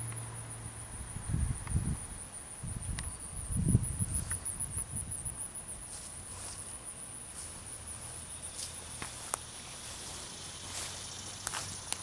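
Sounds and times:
faint low outdoor hum: 0.0s - 12.0s
high-pitched insect trill: 0.0s - 12.0s
soft footsteps: 5.8s - 12.0s.

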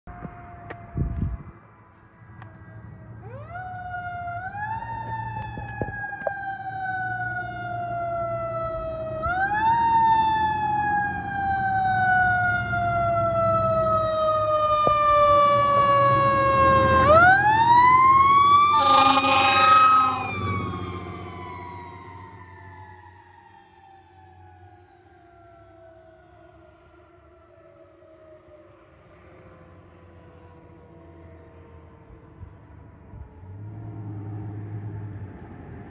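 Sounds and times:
wailing siren: 0.1s - 1.6s, 2.4s - 29.2s
truck engine rumbling: 18.4s - 22.3s
loud truck horn blast: 18.6s - 21.3s.

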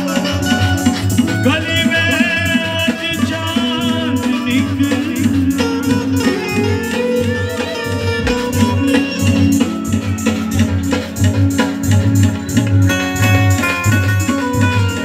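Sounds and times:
regular percussion strokes: 0.0s - 15.0s
wavering devotional melody: 0.0s - 15.0s
low drum pulse: 8.0s - 10.9s.

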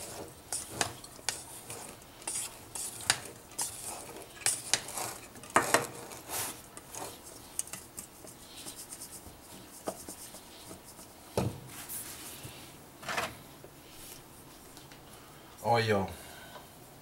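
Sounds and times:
fish scraping in metal bowl: 0.0s - 7.3s.

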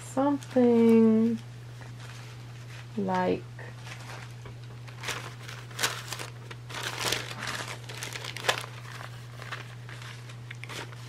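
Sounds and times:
paper rustling and crinkling: 0.3s - 11.0s
sharp paper crackles: 3.7s - 11.0s.

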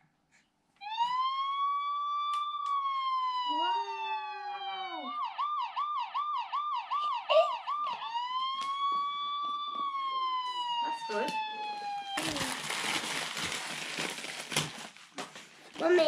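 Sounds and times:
toy electronic siren: 0.8s - 12.6s.

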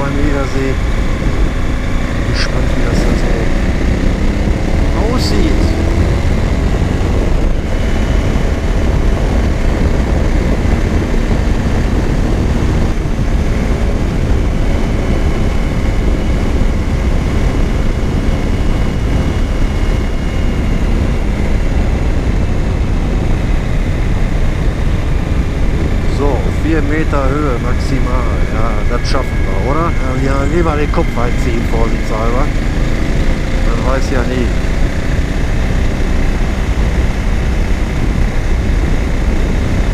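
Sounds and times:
motorcycle engine cruising: 0.0s - 39.9s
wind rush on microphone: 0.0s - 39.9s.

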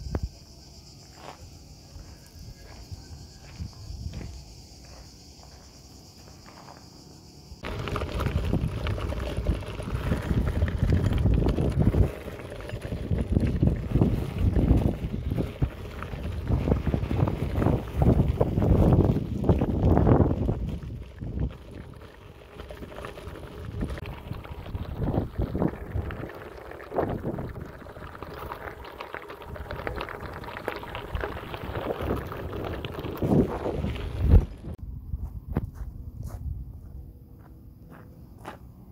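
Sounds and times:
bike rattling: 7.6s - 34.8s
bike tyres crunching on gravel: 7.6s - 34.8s
wind buffeting microphone: 7.6s - 37.0s.

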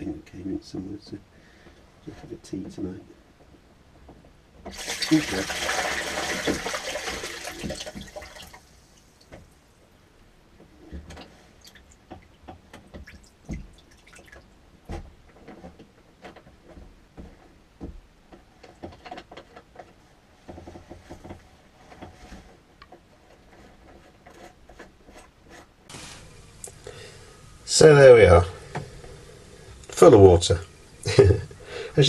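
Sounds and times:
water dripping and trickling: 4.7s - 9.5s, 11.6s - 14.6s.

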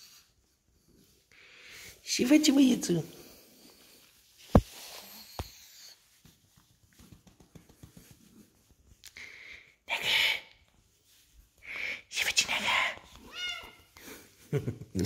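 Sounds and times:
faint rustling and ticks: 3.4s - 9.2s.

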